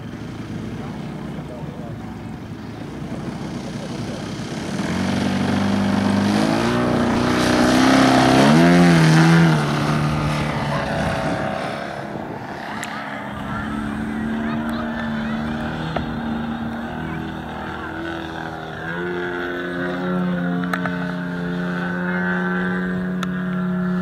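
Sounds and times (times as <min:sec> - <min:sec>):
model plane engine revving: 0:00.0 - 0:24.0.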